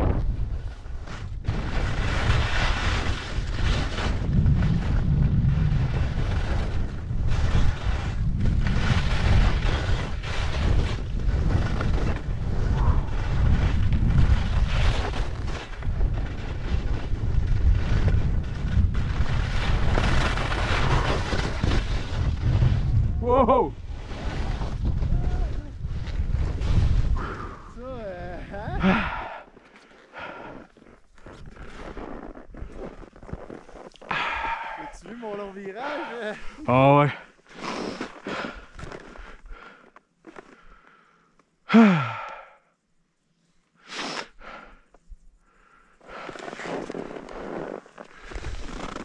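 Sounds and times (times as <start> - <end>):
skis scraping on snow: 0.4 - 23.1, 23.8 - 28.7, 29.6 - 36.8, 37.5 - 40.5, 46.1 - 49.0
wind buffeting microphone: 3.4 - 29.4.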